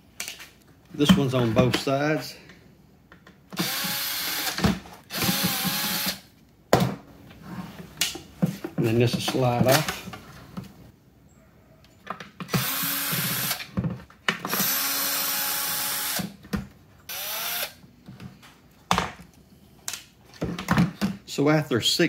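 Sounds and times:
drill motor whirring: 3.6s - 6.2s, 12.5s - 13.6s, 14.5s - 16.3s, 17.1s - 17.8s.

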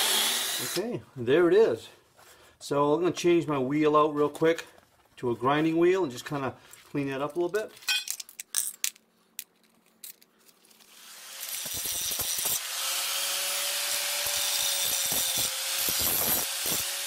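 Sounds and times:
angle grinder grinding steel: 0.0s - 0.9s, 10.9s - 17.0s.

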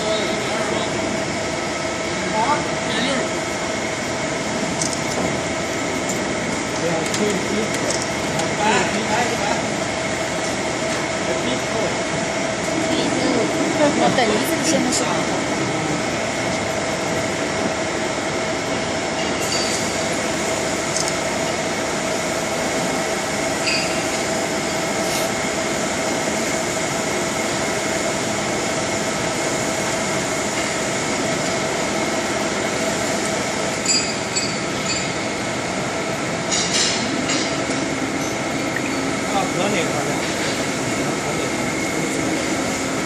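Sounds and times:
workshop machinery drone and hiss: 0.0s - 43.0s
short clicks and clatters: 7.0s - 9.0s.

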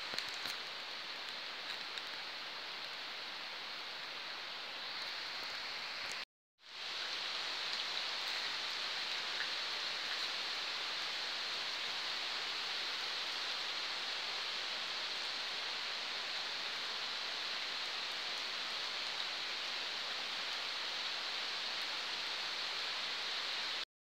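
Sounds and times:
heavy rain pouring: 0.0s - 23.8s.

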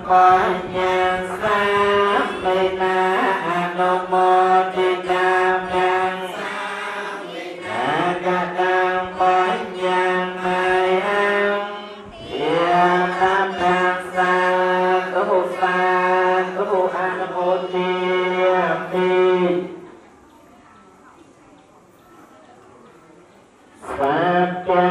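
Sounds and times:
monks chanting in unison: 0.0s - 19.8s.

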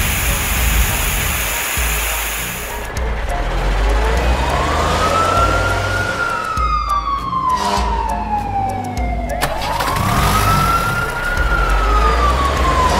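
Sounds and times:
cartoon fire engine siren wail: 4.4s - 12.9s.

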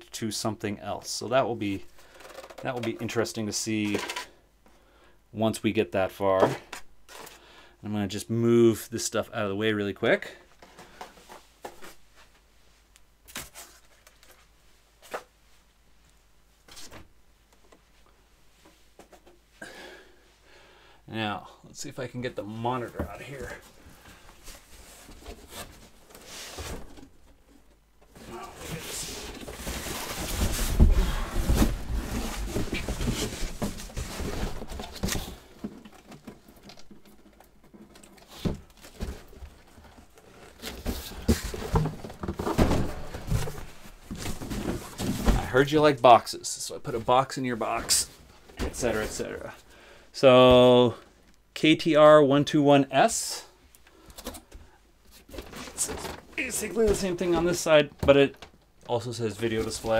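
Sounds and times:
knocks and scrapes of plastic items: 1.9s - 4.4s, 6.3s - 7.4s, 10.4s - 12.3s, 22.7s - 45.8s, 47.0s - 49.6s, 53.9s - 59.9s.

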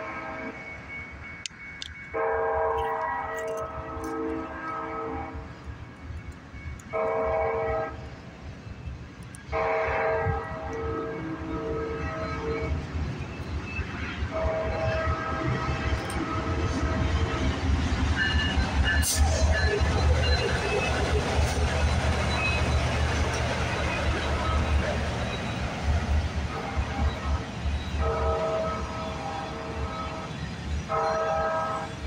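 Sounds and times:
train horn blasts: 0.0s - 0.7s, 2.1s - 5.6s, 6.8s - 8.1s, 9.5s - 12.9s, 14.3s - 17.6s, 18.2s - 20.8s, 26.4s - 32.0s
rumble of oncoming train: 0.0s - 32.0s.

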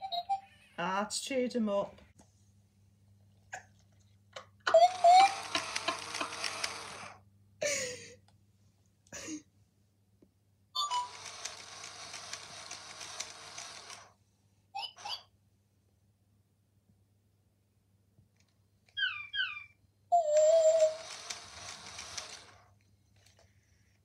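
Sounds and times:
robot toy electronic chatter and beeps: 14.8s - 15.3s, 20.2s - 22.2s.

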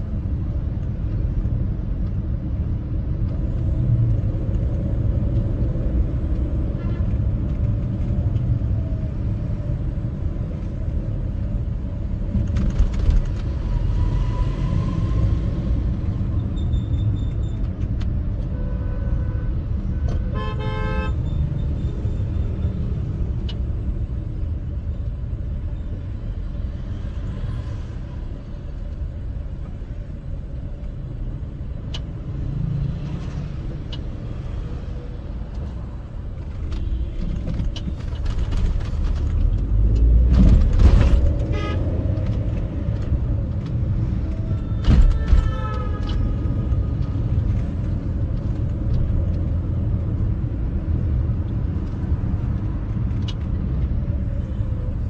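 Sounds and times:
traffic rumble: 0.0s - 55.0s
car horn toots: 20.3s - 21.4s.

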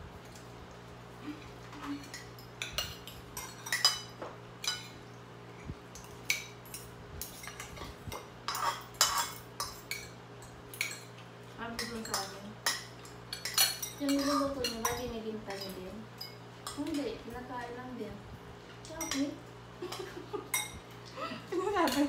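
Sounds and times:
cutlery clinking on plates: 1.8s - 5.0s, 6.0s - 17.0s.

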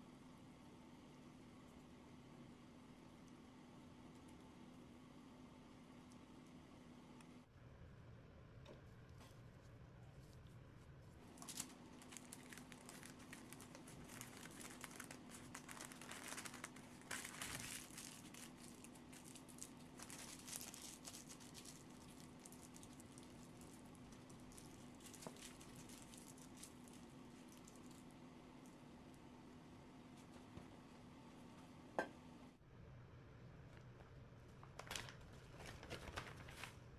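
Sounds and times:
faint steady hum: 0.0s - 36.9s
parchment paper crinkling: 11.2s - 28.0s, 34.5s - 36.9s.

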